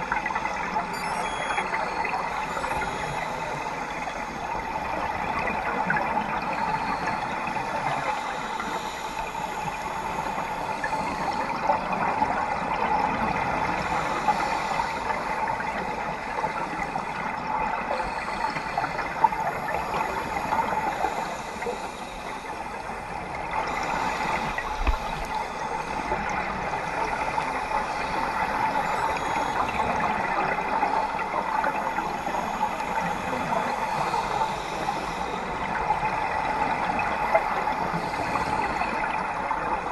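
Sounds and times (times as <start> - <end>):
underwater water rushing: 0.0 - 39.9.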